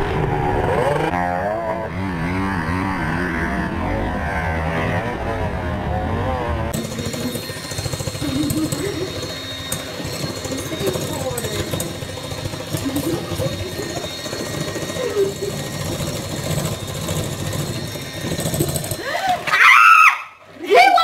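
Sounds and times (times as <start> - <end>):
faint voices: 5.8 - 19.5
electric hand mixer running: 6.0 - 21.0.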